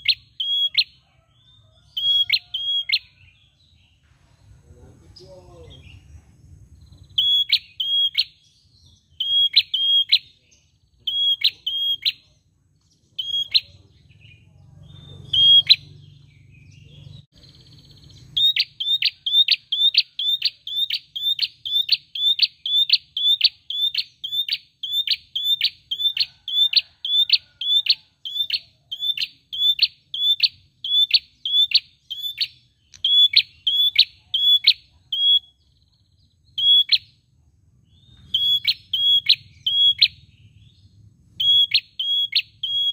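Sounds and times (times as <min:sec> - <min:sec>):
bird calling with sharp high notes: 0:00.0 - 0:03.6, 0:06.8 - 0:37.2, 0:37.8 - 0:42.9.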